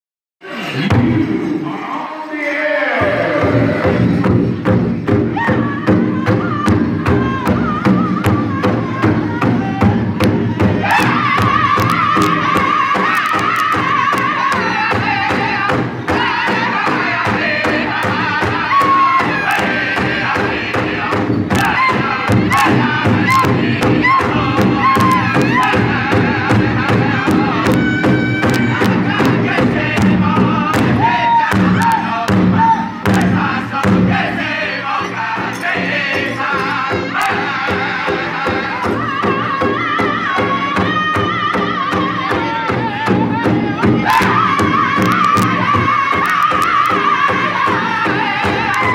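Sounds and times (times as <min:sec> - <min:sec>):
group singing: 0:00.5 - 0:48.9
bass drum beating: 0:03.1 - 0:34.6, 0:35.3 - 0:48.9.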